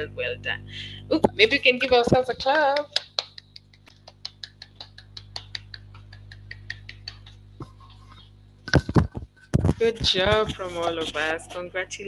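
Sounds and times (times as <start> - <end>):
hands clapping quickly: 2.6 - 7.8.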